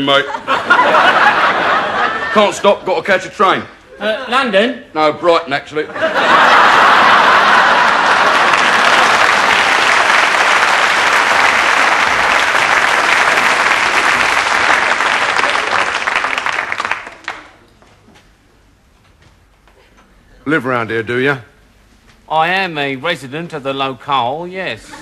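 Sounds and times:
studio audience applauding: 6.6 - 17.6.

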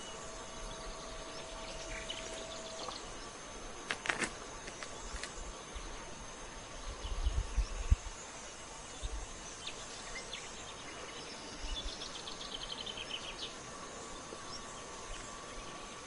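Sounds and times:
bird chirping: 0.0 - 3.4
faint high hum: 0.0 - 16.0.

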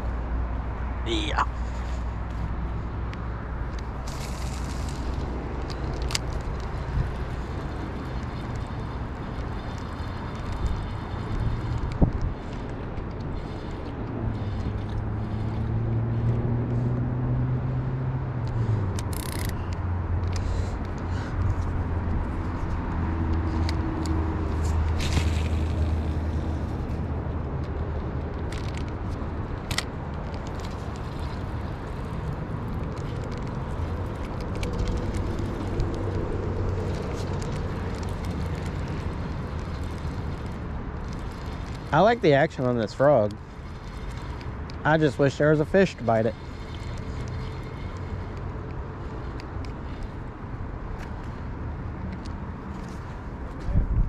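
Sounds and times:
traffic passing: 0.0 - 54.0.

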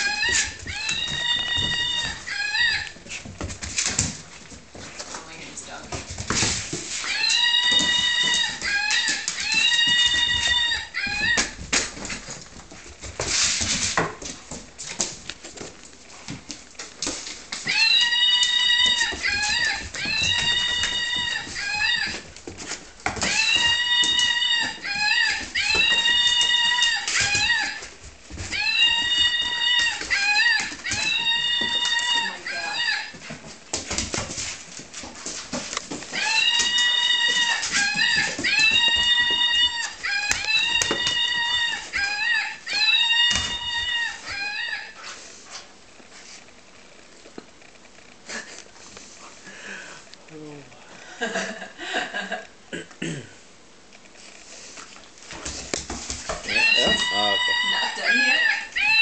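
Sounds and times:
toy monkey screaming: 0.0 - 2.9, 7.1 - 11.5, 23.2 - 27.8, 28.5 - 33.1, 36.1 - 45.0, 56.5 - 59.0
toy electronic screech: 56.5 - 59.0.

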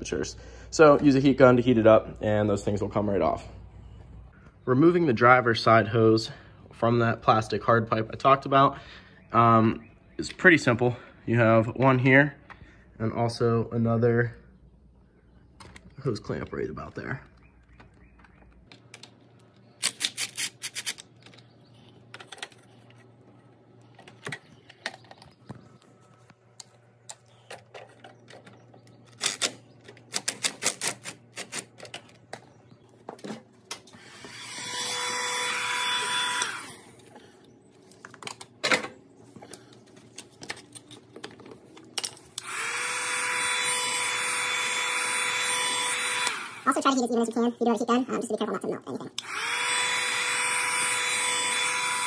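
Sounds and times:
heat gun blowing: 33.9 - 37.1, 42.4 - 46.8, 49.2 - 52.0.

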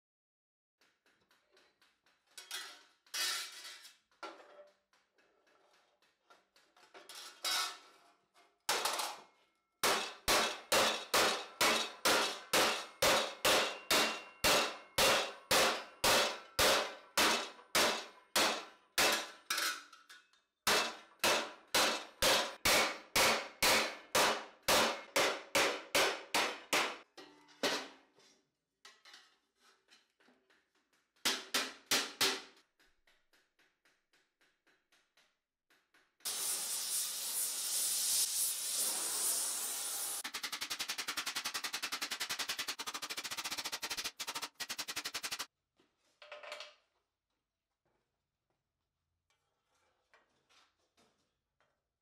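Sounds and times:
hammer striking steel plate: 9.8 - 19.4, 20.7 - 27.1.

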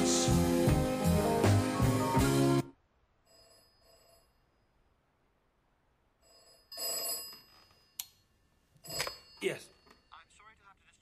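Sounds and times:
telephone bell ringing: 3.2 - 4.8, 6.2 - 10.7.

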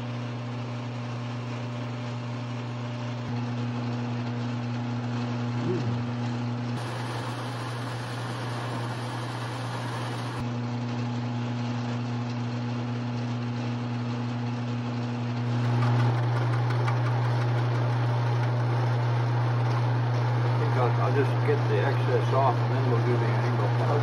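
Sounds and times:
metal lathe motor hum: 6.2 - 10.4.

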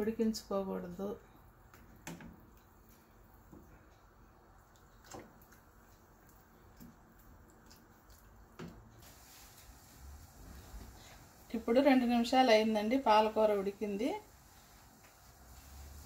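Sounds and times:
spatula stirring in saucepan: 4.8 - 11.4.

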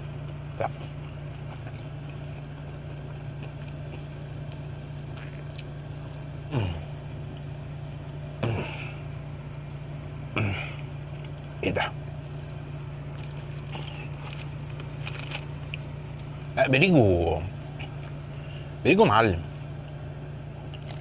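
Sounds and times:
car engine idling: 0.0 - 21.0
man making falling vocal sounds: 6.5 - 7.0, 8.4 - 9.0.

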